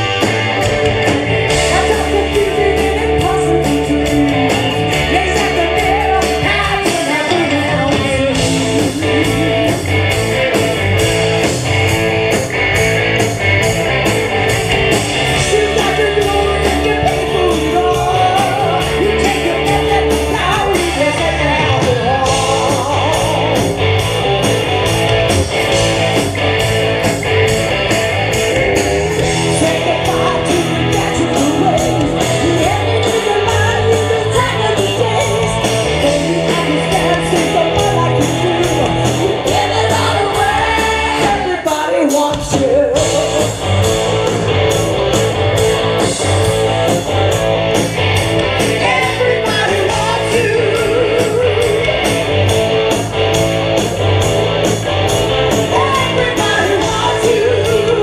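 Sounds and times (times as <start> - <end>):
electric guitar: 0.0 - 58.0
steady drum beat: 0.0 - 58.0
person singing: 1.5 - 9.8, 15.3 - 23.8, 29.2 - 44.5, 48.6 - 52.2, 55.6 - 58.0.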